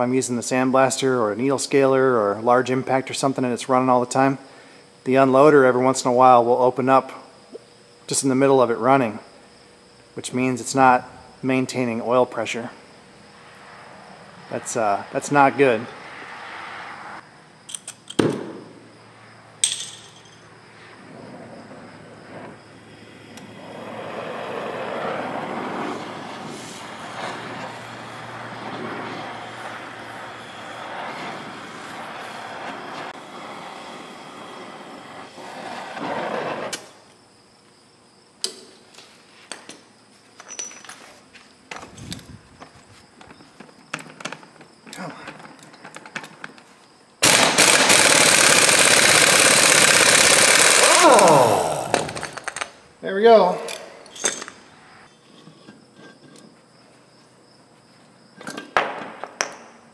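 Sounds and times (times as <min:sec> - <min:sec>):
air compressor running: 0:26.0 - 0:35.5, 0:47.2 - 0:52.6.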